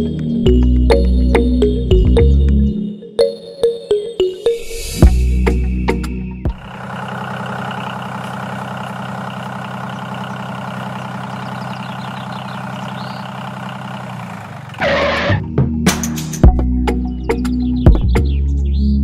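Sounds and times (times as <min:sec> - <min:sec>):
tractor engine idling: 0:05.9 - 0:15.4.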